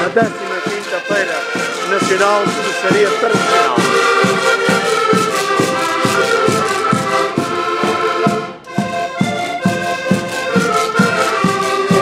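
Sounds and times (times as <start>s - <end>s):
button accordions playing folk tune: 0.0s - 12.0s.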